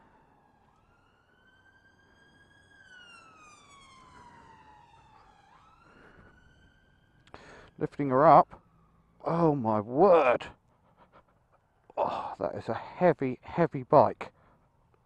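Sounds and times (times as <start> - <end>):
faint siren wailing: 0.0 - 11.9.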